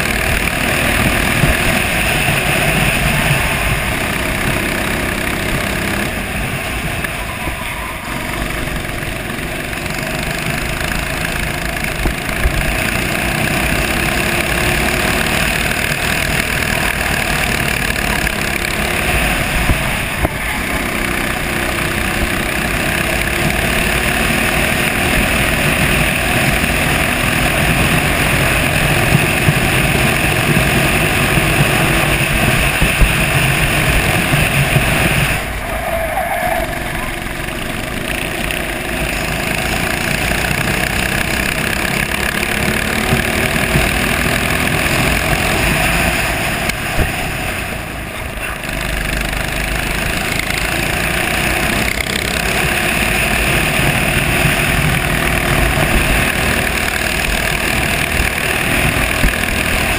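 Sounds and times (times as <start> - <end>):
kart engine running hard: 0.0 - 59.9.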